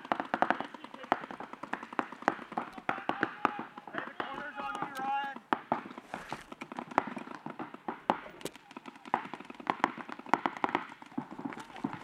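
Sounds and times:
paintball markers firing: 0.0s - 12.0s.

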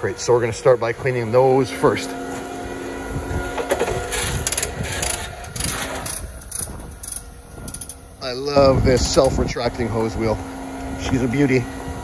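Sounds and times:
concrete pump truck humming: 0.0s - 12.0s
footsteps on gravel: 0.4s - 7.0s
hose reel clicks and rattles: 3.6s - 8.0s.

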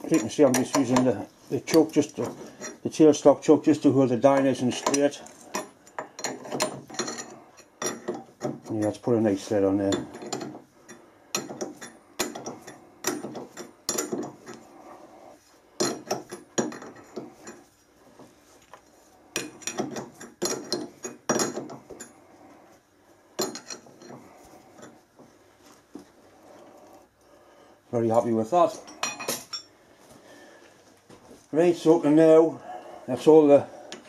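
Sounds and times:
die clicking and scraping on metal: 0.0s - 3.0s, 4.2s - 9.1s, 9.8s - 15.0s, 15.8s - 18.4s, 19.3s - 22.2s.

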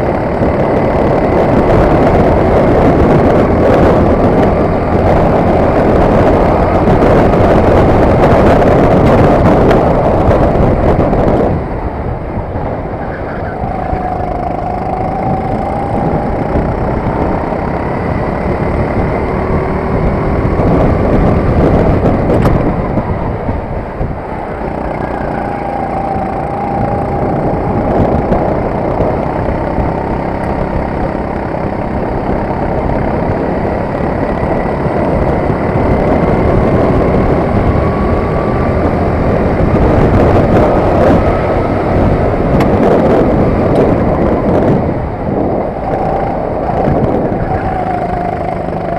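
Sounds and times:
kart engine revving: 12.8s - 48.9s.

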